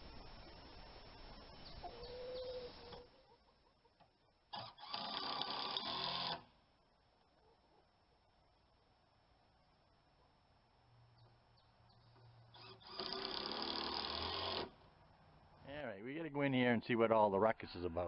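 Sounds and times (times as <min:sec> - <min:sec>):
hens clucking: 0:01.7 - 0:04.7
cordless drill running: 0:12.6 - 0:14.7.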